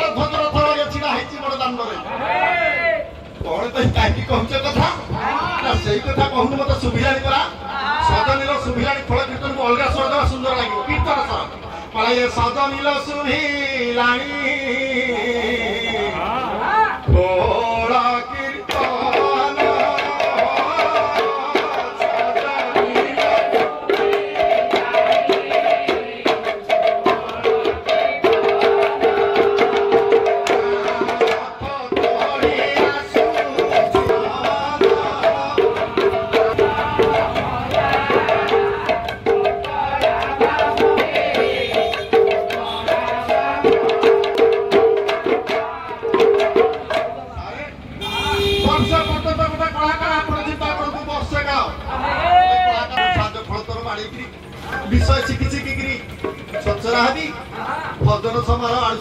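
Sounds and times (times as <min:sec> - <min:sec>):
barrel drums playing fast rhythm: 0:03.1 - 0:11.6, 0:17.1 - 0:47.6, 0:52.9 - 0:59.0.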